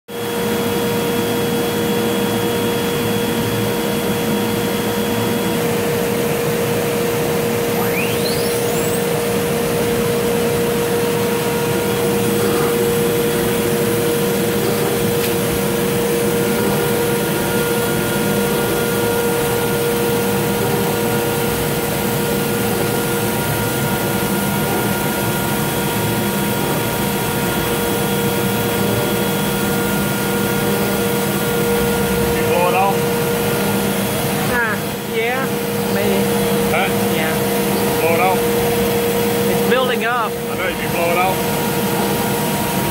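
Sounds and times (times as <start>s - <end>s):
router spindle whine: 0.2s - 42.9s
higher steady tone: 7.5s - 15.1s.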